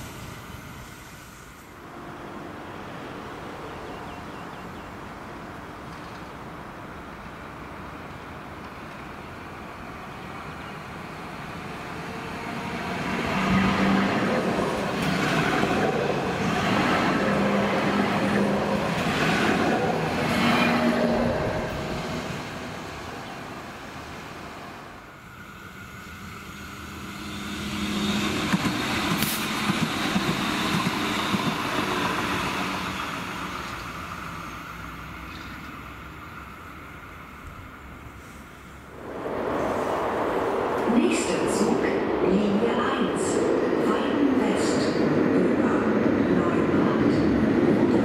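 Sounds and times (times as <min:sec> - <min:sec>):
sharp clicks of passing train: 0:05.4 - 0:09.4, 0:11.8 - 0:17.2, 0:26.5 - 0:36.1
wheel and rail rumble: 0:37.4 - 0:48.0.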